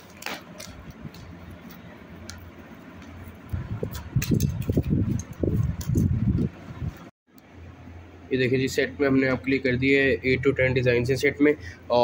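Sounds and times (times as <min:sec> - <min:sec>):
plastic wrapping crinkling: 0:00.0 - 0:02.4.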